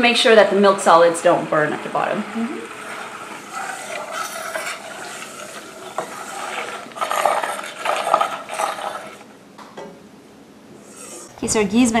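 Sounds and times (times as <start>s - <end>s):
butter sizzling: 0.0s - 9.3s
metal spoon scraping a pot: 2.6s - 9.3s, 10.8s - 11.4s.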